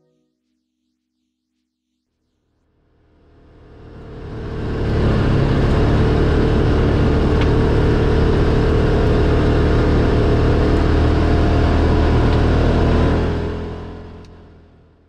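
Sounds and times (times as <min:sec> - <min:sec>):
utv engine running: 0:03.3 - 0:15.0.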